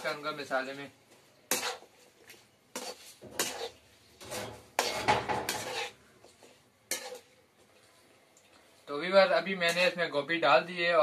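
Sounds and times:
metal spoon scraping a metal pan: 0:01.5 - 0:01.9, 0:02.7 - 0:07.3, 0:09.6 - 0:10.0.

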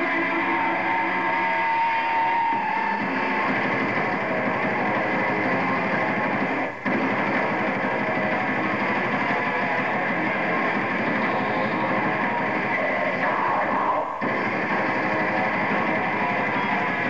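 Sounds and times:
death metal band playing live: 0:00.0 - 0:17.0.

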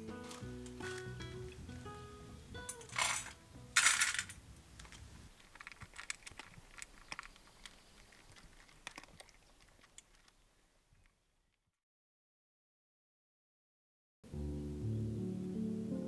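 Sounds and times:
cats crunching dry kibble: 0:02.9 - 0:10.5.

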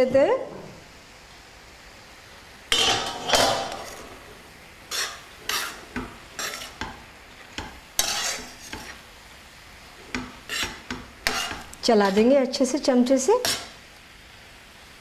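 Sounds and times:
metal spoon scraping a wok: 0:04.9 - 0:07.0, 0:07.6 - 0:09.0, 0:10.0 - 0:12.4, 0:13.4 - 0:13.8.

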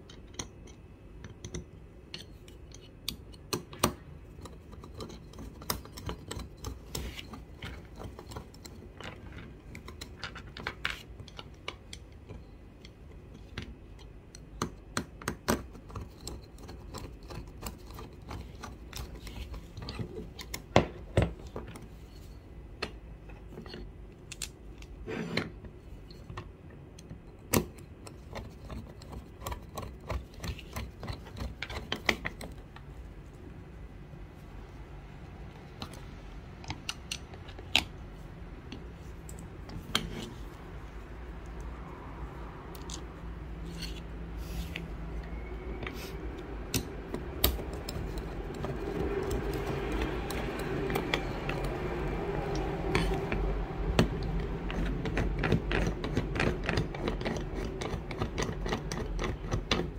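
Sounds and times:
small screws and parts clicking: 0:00.0 - 0:25.0, 0:25.9 - 0:33.0, 0:35.5 - 0:59.9.

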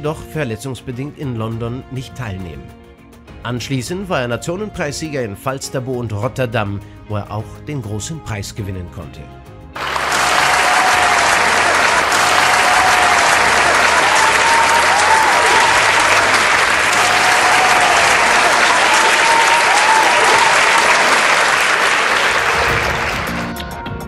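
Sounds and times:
crowd cheering: 0:09.8 - 0:23.6
crowd applauding: 0:09.8 - 0:23.8.

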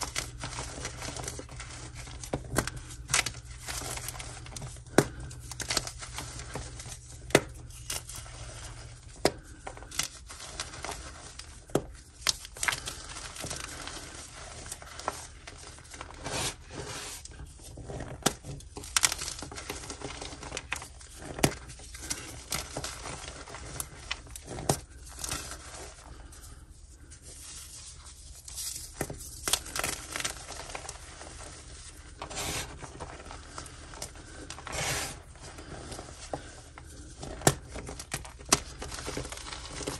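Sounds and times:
powdery crunching: 0:00.0 - 0:39.9.

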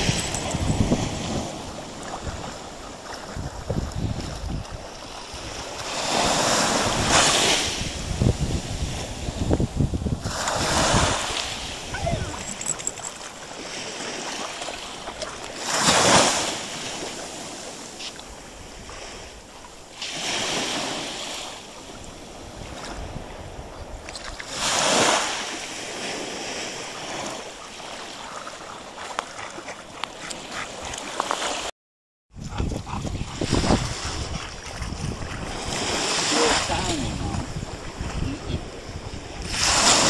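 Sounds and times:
small waves breaking: 0:00.0 - 0:09.4, 0:10.2 - 0:31.7, 0:33.5 - 0:40.0
wind buffeting microphone: 0:00.0 - 0:14.3, 0:21.9 - 0:24.4, 0:32.3 - 0:40.0.

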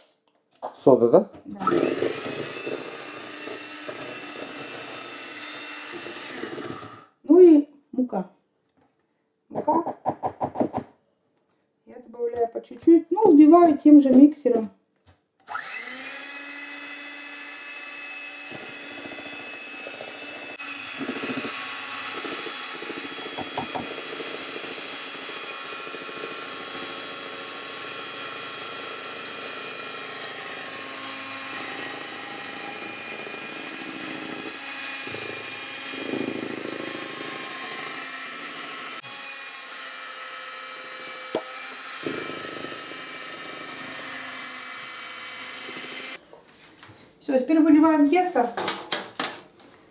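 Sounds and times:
electric mixer running: 0:01.6 - 0:07.2, 0:15.5 - 0:46.2.

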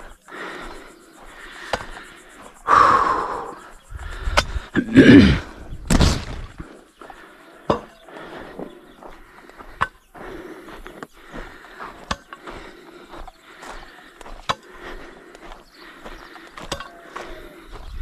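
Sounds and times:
earth scraping and rustling: 0:04.1 - 0:06.8.

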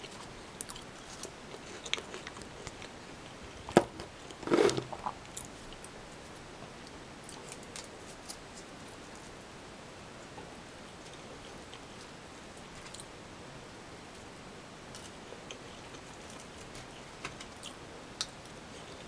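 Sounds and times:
soft chewing: 0:00.0 - 0:03.7, 0:10.2 - 0:13.1, 0:14.9 - 0:19.0
plastic fork scraping a box: 0:04.4 - 0:05.0.

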